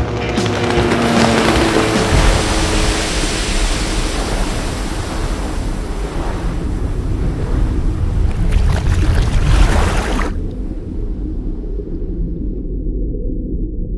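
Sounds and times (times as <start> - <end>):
rushing water: 0.0 - 11.0
deep rumble: 0.0 - 13.9.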